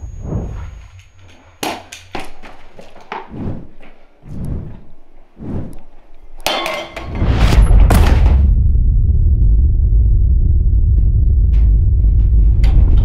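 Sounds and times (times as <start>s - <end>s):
heavy low rumble: 0.0s - 1.6s, 3.3s - 5.8s, 7.1s - 13.0s.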